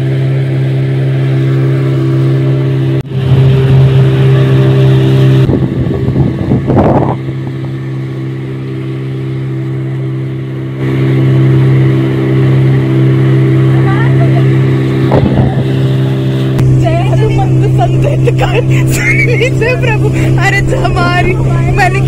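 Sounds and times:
outboard motor droning: 0.0 - 22.0
rough rushing noise: 10.8 - 22.0.

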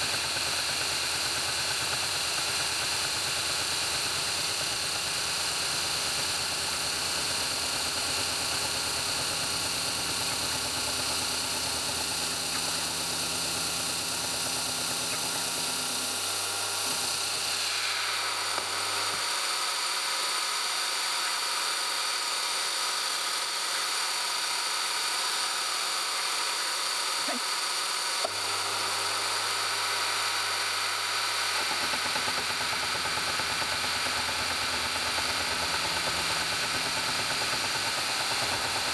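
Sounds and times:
milling machine whine: 0.0 - 38.9.

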